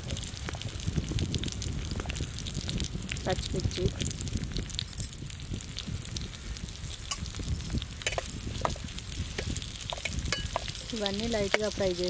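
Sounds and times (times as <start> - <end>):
onions sizzling in oil: 0.0 - 12.0
metal spoon scraping pan: 8.0 - 12.0.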